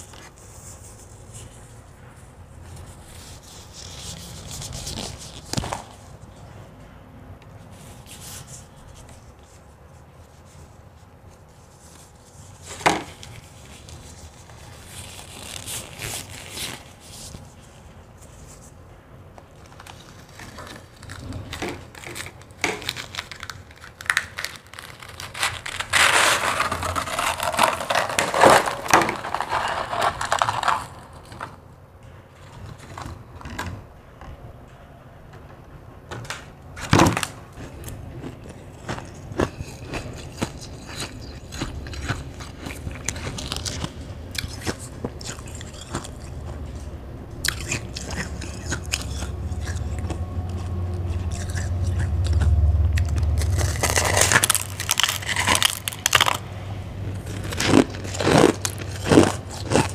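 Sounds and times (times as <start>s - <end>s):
plastic gloves crinkling: 0.0s - 6.6s, 7.7s - 18.8s, 19.4s - 31.7s, 36.9s - 59.9s
plastic tub crackling and scraping: 19.6s - 31.6s, 47.6s - 56.4s, 57.0s - 59.9s
crushed ice crunching: 19.7s - 31.6s, 37.2s - 46.8s, 53.0s - 56.4s, 57.1s - 59.9s.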